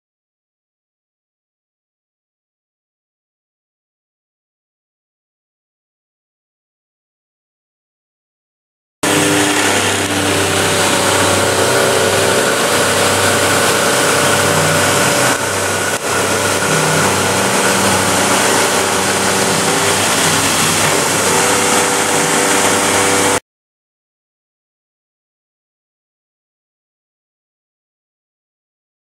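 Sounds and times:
milling machine cutting metal: 9.0s - 23.4s.

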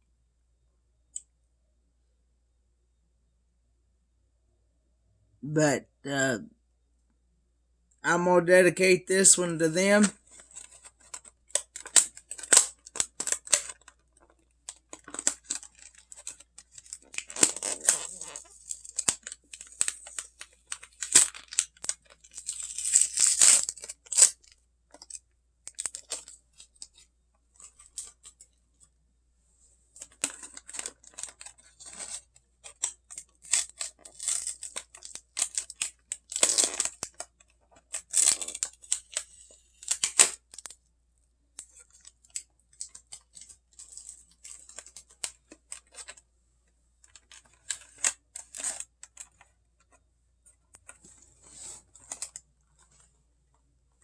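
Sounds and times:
plastic wrap crinkling and tearing: 9.8s - 28.6s, 30.0s - 40.8s, 41.6s - 46.2s, 47.0s - 49.9s, 50.8s - 53.0s.

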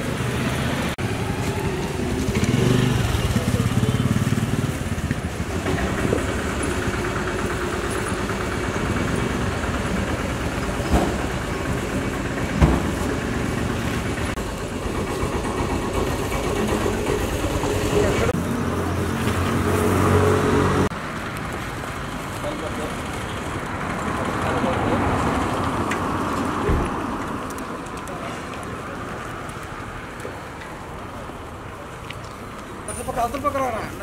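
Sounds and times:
motorcycle passing close: 0.0s - 14.4s, 17.8s - 20.9s
street traffic: 0.0s - 34.0s.

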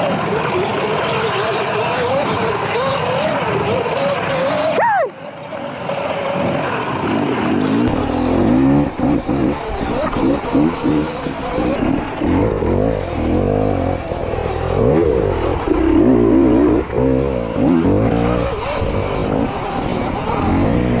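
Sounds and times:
electric motor whine: 0.0s - 21.0s
tyre and trail noise: 0.0s - 21.0s.

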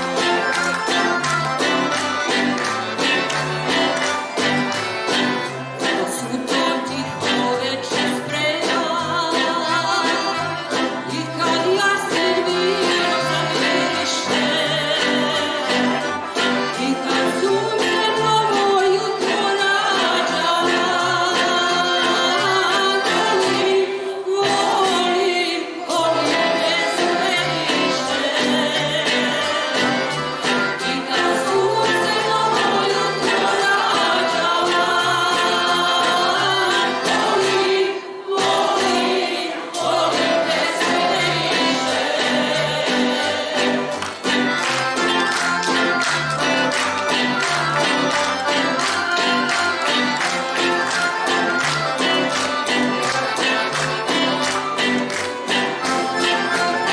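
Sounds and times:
acoustic guitar and plucked strings: 0.0s - 56.9s
woman singing: 5.8s - 30.0s, 30.8s - 44.0s
mixed choir singing: 16.8s - 44.7s.

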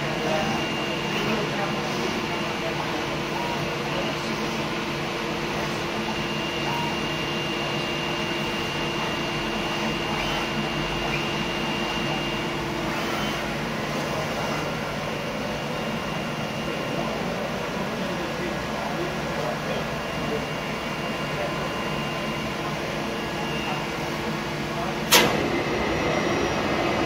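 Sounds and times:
cutting machine running: 20.0s - 27.0s.

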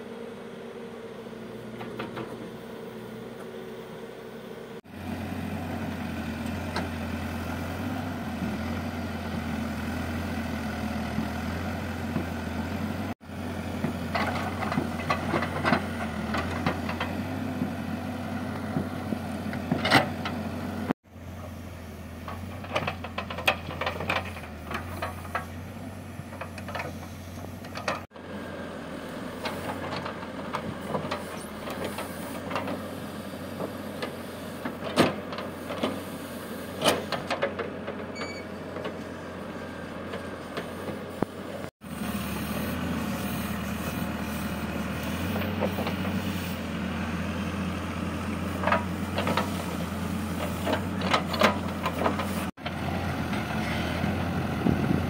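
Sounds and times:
diesel engine running: 0.0s - 55.0s
bucket and linkage clanking: 50.4s - 52.4s.

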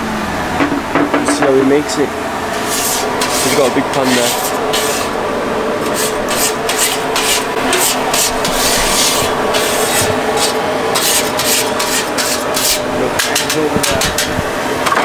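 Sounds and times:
metal scraper rasping on griddle: 2.5s - 5.2s, 5.8s - 14.3s.

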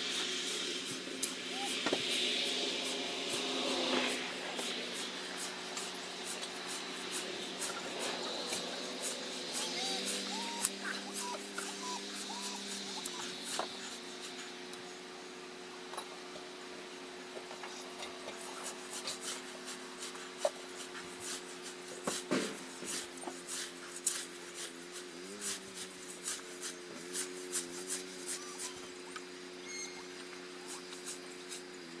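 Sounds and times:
scythe swishing through grass: 0.0s - 14.7s, 18.3s - 29.1s, 30.5s - 31.8s.

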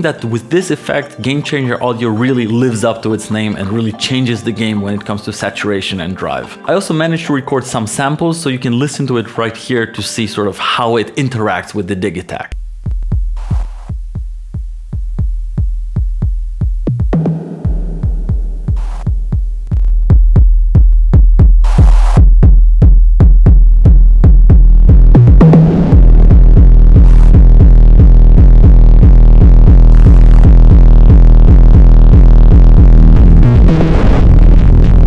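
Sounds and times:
distorted drum machine beat: 12.5s - 35.0s.

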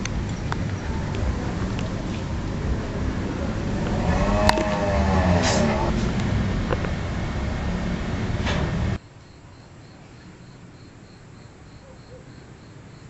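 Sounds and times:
storm rain and wind rushing: 0.0s - 9.0s
crickets chirping: 9.0s - 13.0s.

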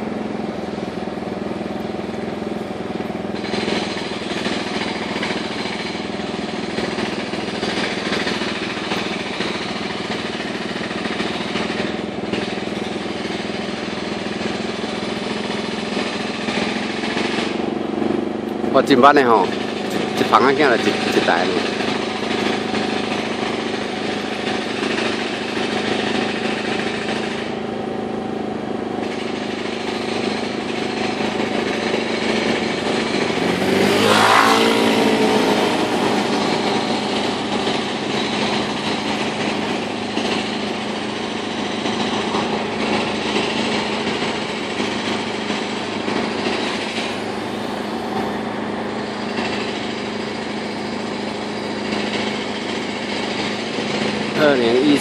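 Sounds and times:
street traffic: 0.0s - 55.0s
vehicle passing close by: 33.0s - 40.4s.

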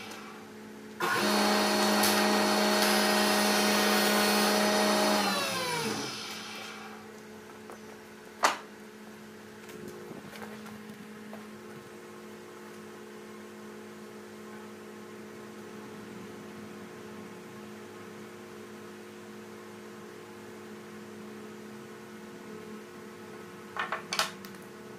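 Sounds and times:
low electrical hum: 0.0s - 24.9s
motor whine coasting down: 1.0s - 7.0s.

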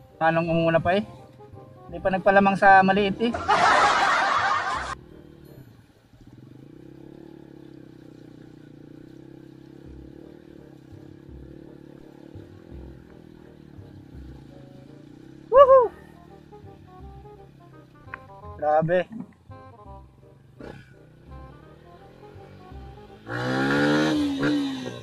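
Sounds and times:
motorcycle engine running: 0.0s - 25.0s
loud cry: 15.5s - 16.0s.

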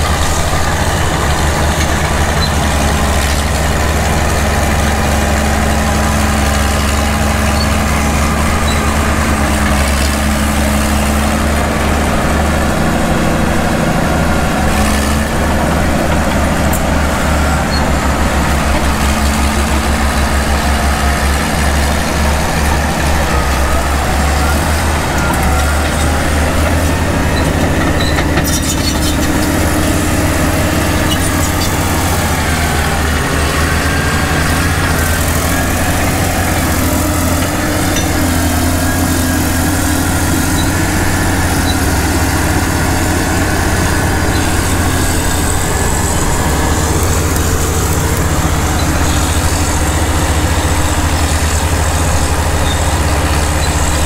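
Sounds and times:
bulldozer engines droning: 0.0s - 54.0s.

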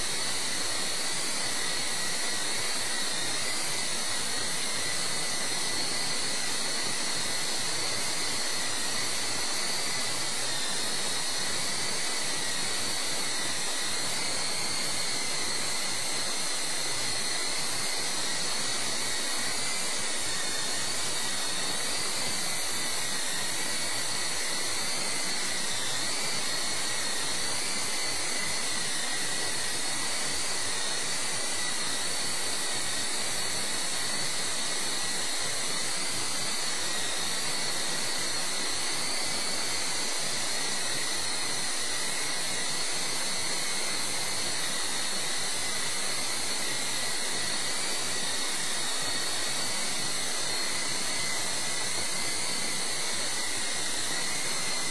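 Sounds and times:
high motor whine: 0.0s - 54.9s.

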